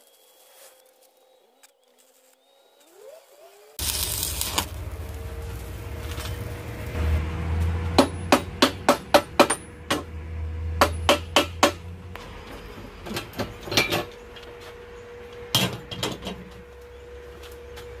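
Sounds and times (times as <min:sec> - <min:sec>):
hammer striking steel: 0:07.5 - 0:10.2, 0:10.8 - 0:11.9.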